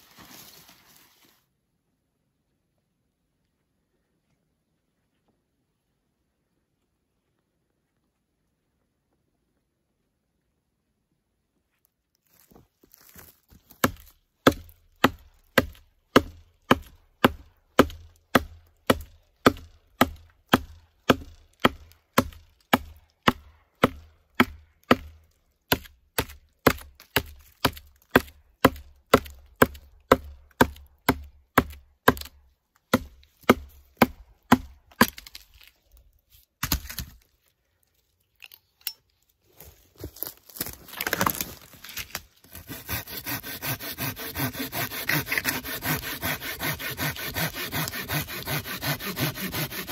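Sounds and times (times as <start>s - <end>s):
knife chopping wood: 13.7s - 35.5s, 36.6s - 37.2s, 42.0s - 49.9s.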